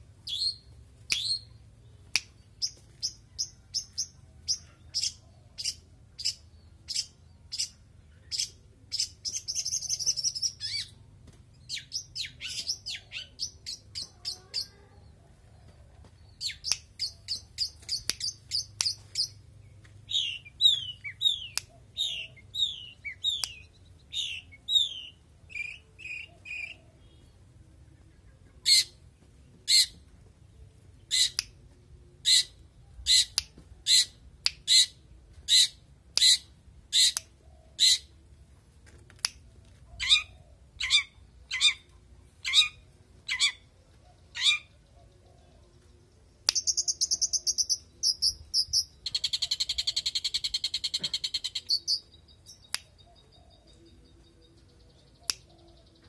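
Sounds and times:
bird singing: 15.6s - 31.4s, 39.9s - 56.0s.

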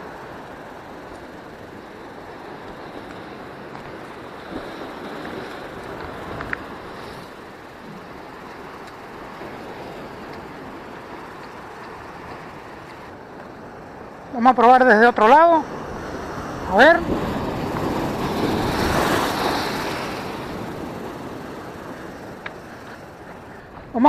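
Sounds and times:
surf washing over rocks: 0.0s - 24.0s
wind rumbling on microphone: 15.6s - 24.0s.

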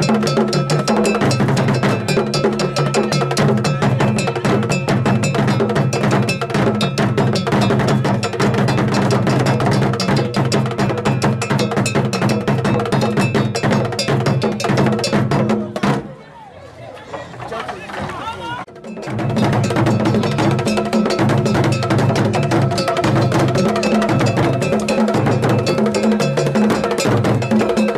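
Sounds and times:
drum ensemble playing fast rhythm: 0.0s - 16.2s, 17.3s - 27.9s
metallic bell ringing: 18.9s - 27.9s.

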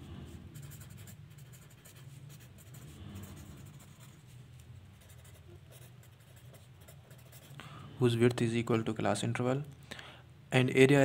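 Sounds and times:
pen scratching on paper: 0.0s - 7.5s
low steady hum: 0.0s - 11.0s.

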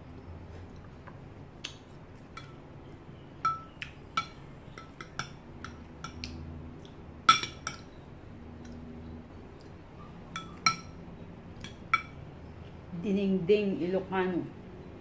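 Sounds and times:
metal spoon clinking on glass: 3.4s - 6.2s, 7.3s - 7.9s, 10.3s - 11.0s.

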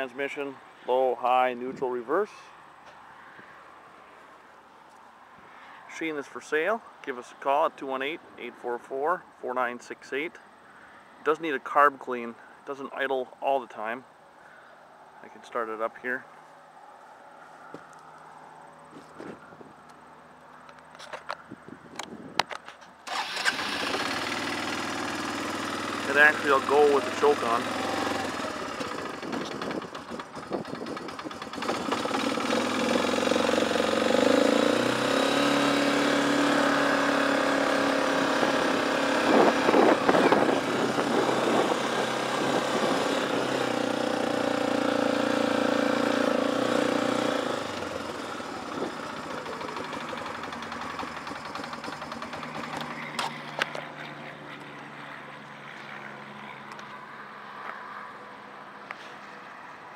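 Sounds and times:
atv engine running: 23.1s - 54.9s.

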